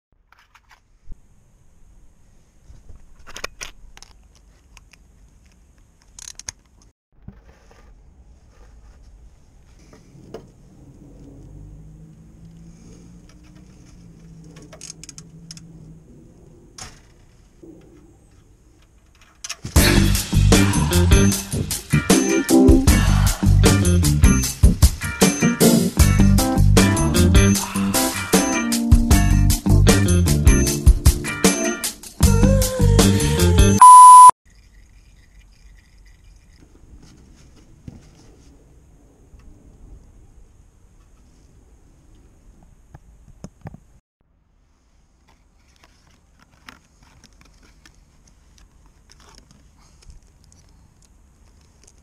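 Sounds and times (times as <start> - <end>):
loud music: 19.8 - 24.1
background music: 19.8 - 33.8
high beep: 33.8 - 34.3.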